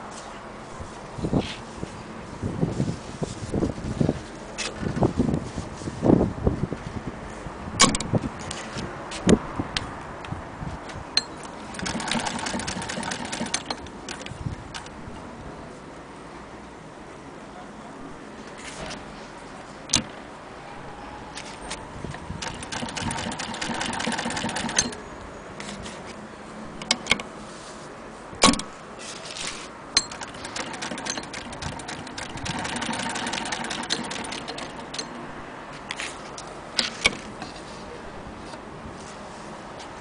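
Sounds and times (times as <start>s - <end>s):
sharp knocks and clicks: 7.8s - 8.2s, 28.4s - 28.7s
sewing machine metallic clatter: 11.7s - 14.9s, 22.4s - 25.0s, 30.0s - 35.1s.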